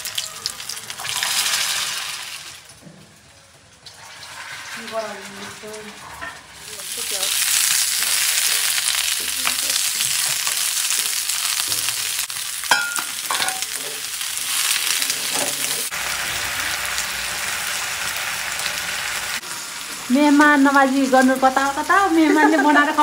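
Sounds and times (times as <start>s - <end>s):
vegetables sizzling in hot oil: 0.0s - 2.8s, 3.7s - 23.0s.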